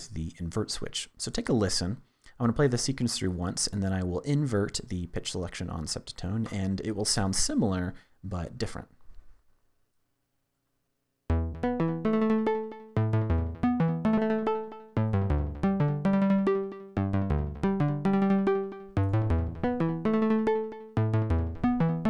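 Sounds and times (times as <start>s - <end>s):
synthesizer sequenced melody: 11.3s - 22.0s.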